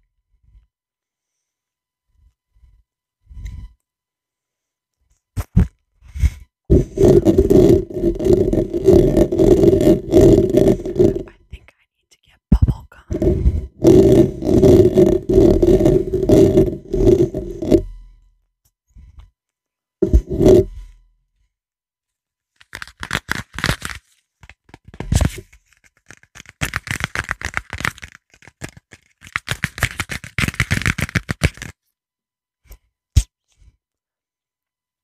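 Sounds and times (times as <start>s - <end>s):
mouth or gum sound: 6.7s - 11.4s, 12.6s - 17.8s
wrapper crinkling and tearing: 22.6s - 31.8s.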